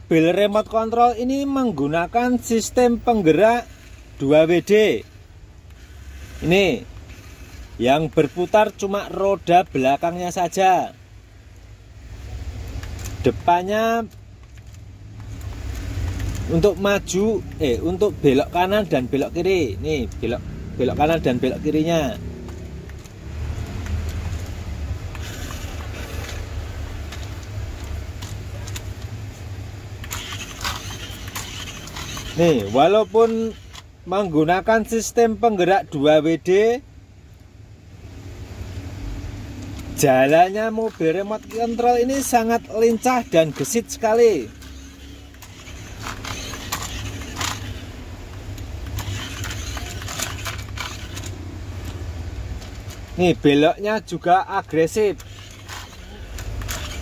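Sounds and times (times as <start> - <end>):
toy car motor humming: 2.5 - 10.6, 14.6 - 20.1, 20.8 - 23.0, 23.7 - 28.8, 30.0 - 35.2, 40.0 - 52.0, 54.6 - 57.0
toy car clattering on floor: 30.0 - 33.8, 44.6 - 47.8, 48.8 - 51.3, 55.2 - 57.0.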